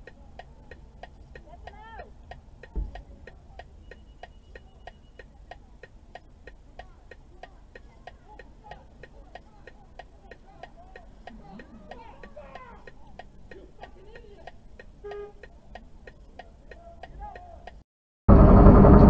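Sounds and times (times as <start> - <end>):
faint voices: 0.0 - 17.8
hazard flasher ticking: 0.0 - 17.8.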